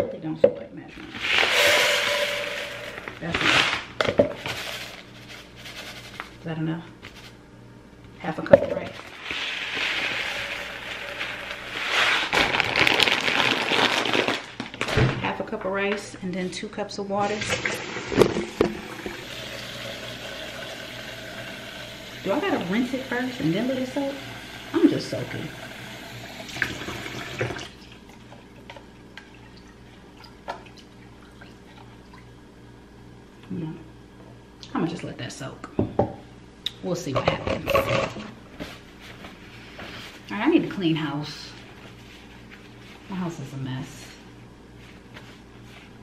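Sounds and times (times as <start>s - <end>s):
plastic bag crinkling: 1.1s - 6.4s, 9.0s - 15.0s
faucet running into sink: 17.4s - 27.8s.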